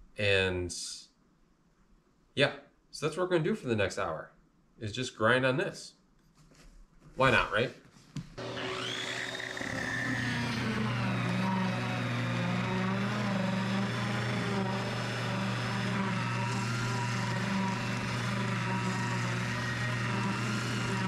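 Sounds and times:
angle grinder grinding floor: 0:08.4 - 0:21.0.

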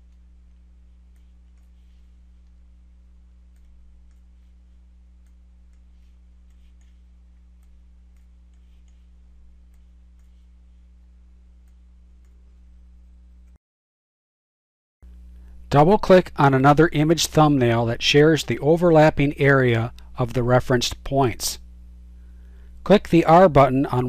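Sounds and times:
steady low hum: 0:00.0 - 0:13.6, 0:15.0 - 0:24.0
computer mouse and keyboard clicks: 0:05.2 - 0:09.1, 0:09.7 - 0:10.5.

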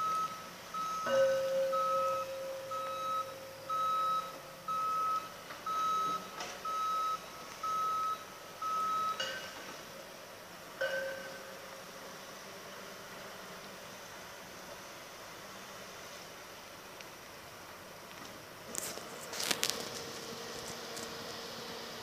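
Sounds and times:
steady low tone: 0:00.0 - 0:05.0
machinery warning beeper: 0:00.0 - 0:09.4.

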